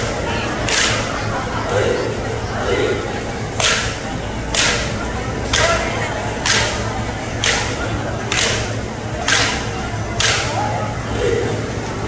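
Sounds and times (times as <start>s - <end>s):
sharp cracking strikes: 3.6s - 5.8s.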